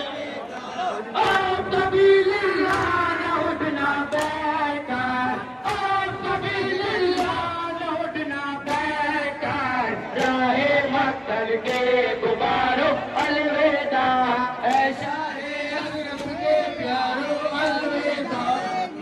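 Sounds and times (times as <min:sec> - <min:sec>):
men chanting in unison: 0:00.0 - 0:19.0
sharp beat: 0:01.2 - 0:17.9.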